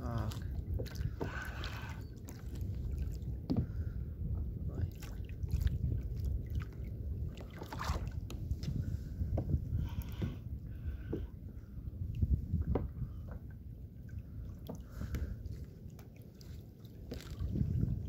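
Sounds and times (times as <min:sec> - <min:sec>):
water lapping at a kayak: 0:00.0 - 0:18.0
wind rumbling on microphone: 0:00.0 - 0:18.0
light knocks against hull: 0:03.2 - 0:04.5, 0:07.3 - 0:11.4, 0:12.5 - 0:13.6.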